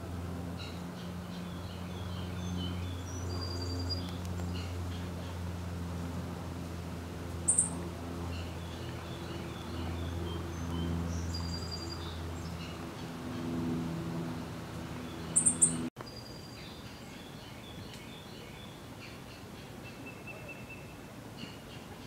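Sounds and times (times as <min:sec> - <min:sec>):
steady low hum: 0:00.0 - 0:15.9
sharp high bird chirps: 0:07.5 - 0:07.8, 0:15.3 - 0:16.6.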